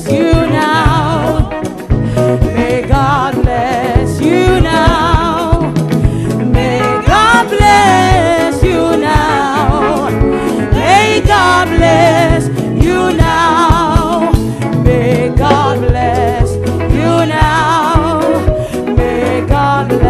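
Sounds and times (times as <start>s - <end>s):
drum and bass backing beat: 0.0s - 20.0s
woman singing with vibrato: 0.0s - 20.0s.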